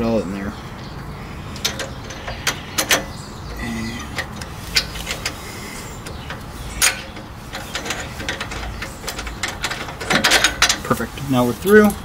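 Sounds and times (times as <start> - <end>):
sharp metallic clicks: 1.5 - 11.0.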